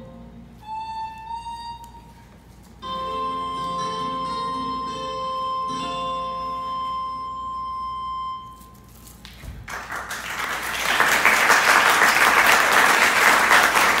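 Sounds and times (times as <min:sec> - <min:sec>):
held musical note: 0:00.0 - 0:08.8
audience applause: 0:09.7 - 0:14.0.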